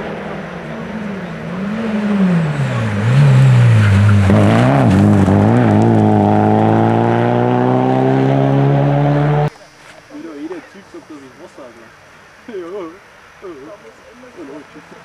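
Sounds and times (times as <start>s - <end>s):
rally car engine passing: 0.0s - 9.5s.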